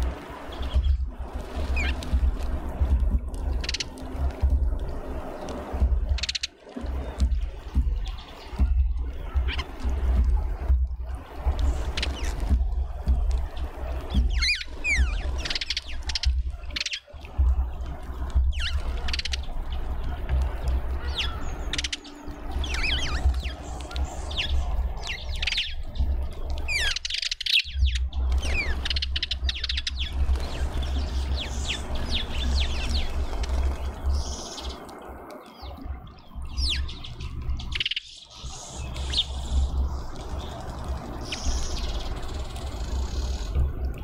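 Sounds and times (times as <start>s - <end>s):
low rumble: 0.0s - 27.1s, 38.4s - 44.0s
small birds chirping: 0.0s - 44.0s.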